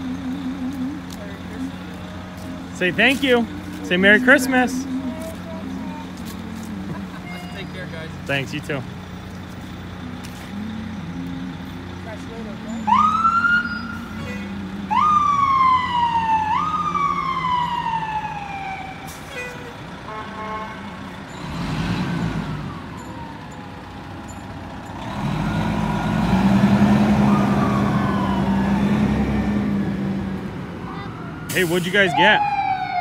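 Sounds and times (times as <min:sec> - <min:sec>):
fire engine motor: 0:00.0 - 0:33.0
fire engine siren whoops: 0:12.8 - 0:19.8, 0:25.4 - 0:30.0, 0:30.9 - 0:33.0.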